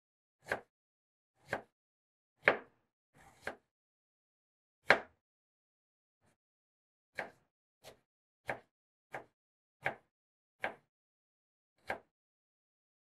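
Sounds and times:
knife slicing onion on board: 0.4 - 0.7, 1.4 - 1.7, 2.4 - 3.7, 4.8 - 5.2, 7.2 - 10.9, 11.8 - 12.1.

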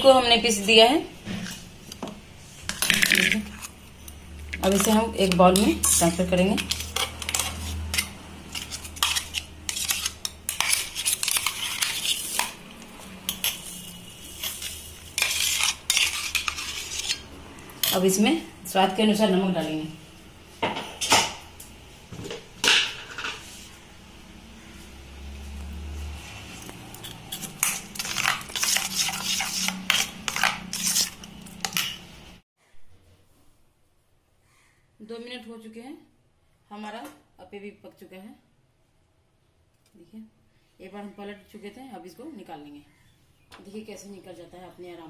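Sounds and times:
spoon scraping steel jar: 2.6 - 18.2, 26.6 - 32.0.

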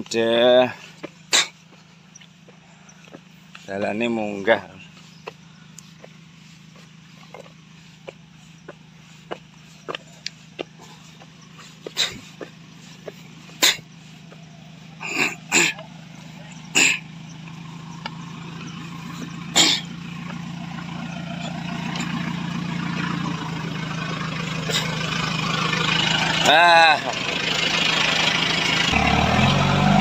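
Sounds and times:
car engine running: 0.0 - 30.0
person panting: 5.0 - 14.4, 24.6 - 25.0.

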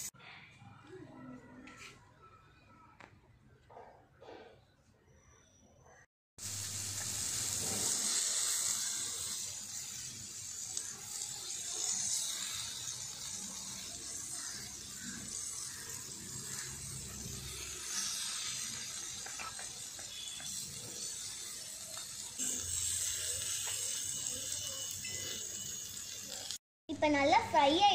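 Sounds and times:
paneer sizzling in hot oil: 6.4 - 27.9.

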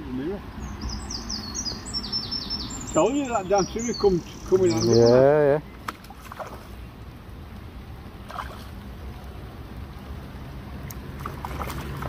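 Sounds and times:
fish splashing at surface: 5.8 - 6.8, 8.2 - 8.9, 10.9 - 12.0
rain falling on water and umbrella: 6.8 - 12.0.

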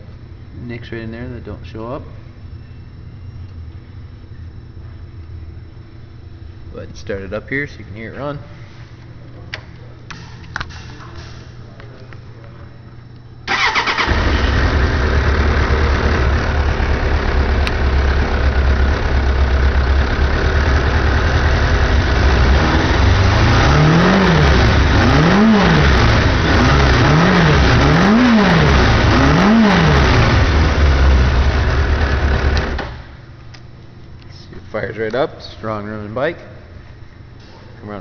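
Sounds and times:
engine revving in throttle blips: 13.5 - 18.5, 20.3 - 32.8
motorcycle engine idling: 13.5 - 22.4, 30.4 - 33.0.

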